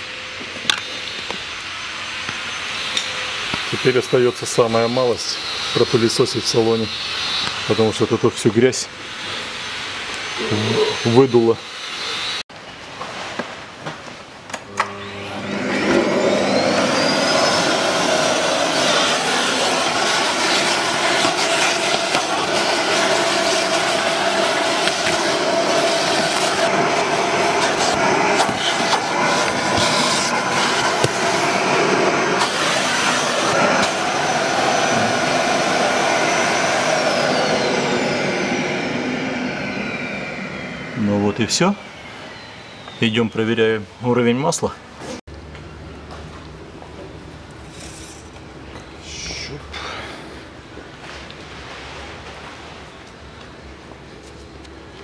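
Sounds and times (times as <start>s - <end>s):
vacuum cleaner motor: 0.2s - 12.4s, 14.7s - 43.0s
vacuum sucking grit: 2.6s - 12.4s, 14.9s - 42.9s.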